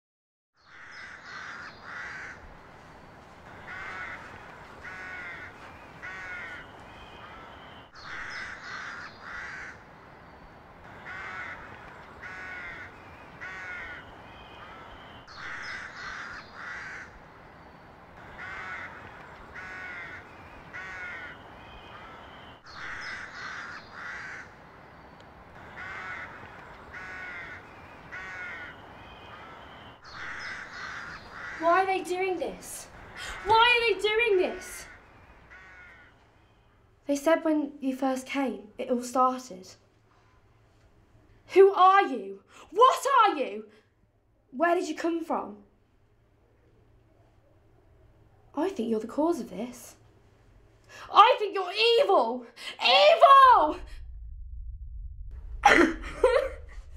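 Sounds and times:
crows cawing: 0:00.6 - 0:02.6, 0:03.4 - 0:09.9, 0:10.8 - 0:17.3, 0:18.2 - 0:24.6, 0:25.5 - 0:31.8, 0:33.0 - 0:36.8.

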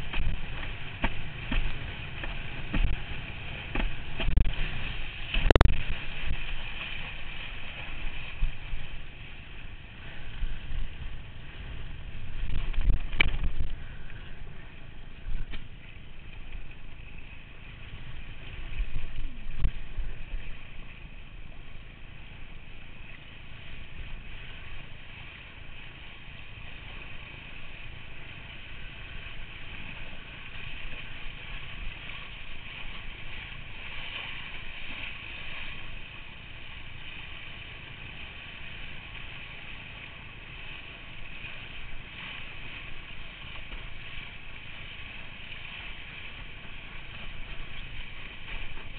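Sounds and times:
wind buffeting microphone: 0:00.0 - 0:15.7
rushing water and spray: 0:00.0 - 0:48.9.

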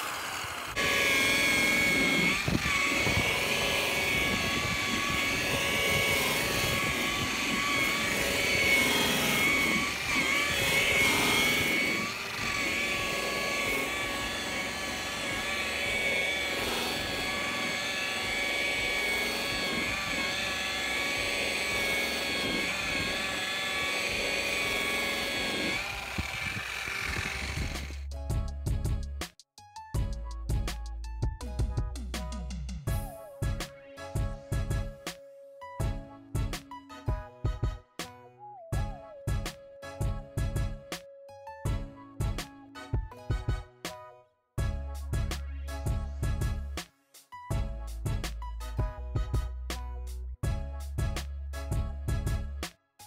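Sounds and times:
electric polisher motor whine: 0:00.0 - 0:28.0.

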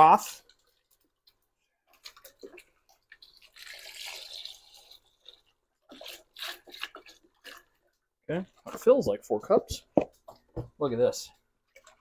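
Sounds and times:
small drips and knocks: 0:00.4 - 0:08.9, 0:11.6 - 0:12.0
broth pouring into a pot: 0:02.2 - 0:07.9.

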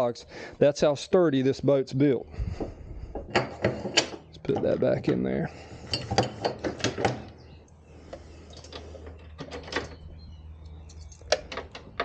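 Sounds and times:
metal parts clicking and knocking: 0:05.9 - 0:07.4, 0:10.9 - 0:12.0.

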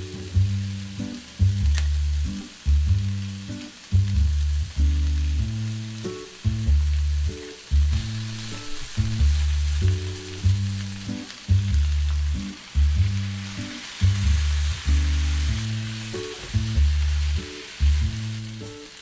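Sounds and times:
background music deep notes: 0:00.0 - 0:19.0
food sizzling in a pan: 0:00.0 - 0:19.0.

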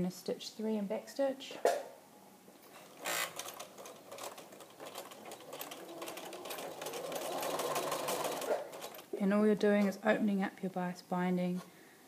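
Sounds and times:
sewing machine stitching: 0:02.7 - 0:09.2.

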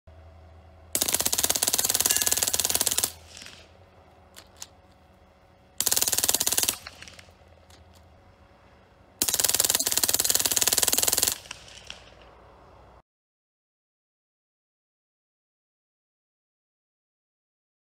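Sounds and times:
machine gun bursts: 0:01.0 - 0:03.7, 0:05.8 - 0:07.4, 0:09.2 - 0:12.2.

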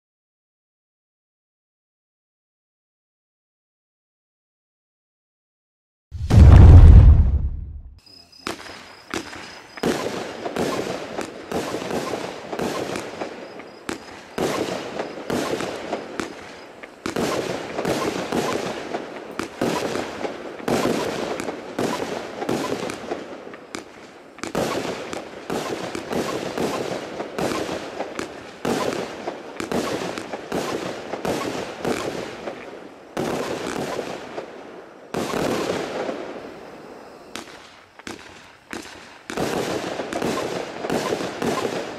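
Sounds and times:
firework battery crackling pops: 0:06.2 - 0:34.4, 0:37.4 - 0:41.9.

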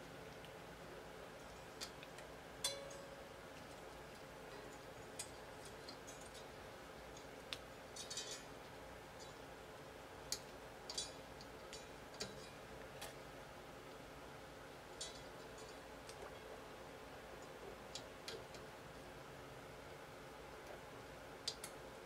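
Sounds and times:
low steady hiss: 0:00.0 - 0:22.0
metallic clicks of guitar strings: 0:10.3 - 0:13.2.

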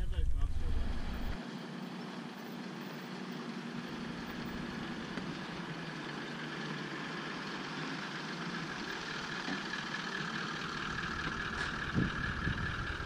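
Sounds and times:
steady high whine: 0:00.0 - 0:01.6
vehicle engines rumbling: 0:00.0 - 0:13.0.

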